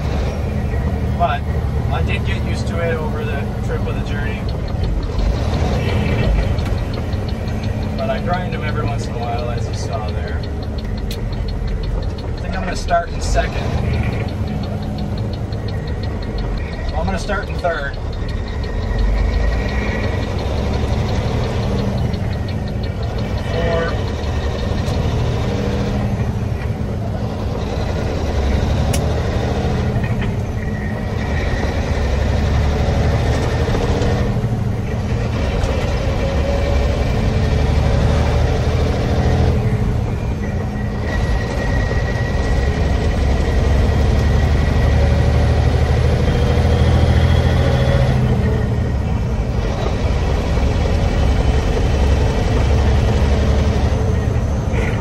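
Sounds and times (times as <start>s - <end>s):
diesel truck engine droning: 0.0s - 55.0s
road noise: 0.0s - 55.0s.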